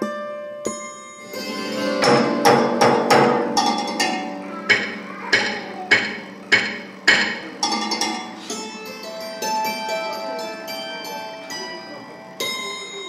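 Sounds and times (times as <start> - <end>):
hammered dulcimer playing: 0.7 - 13.0.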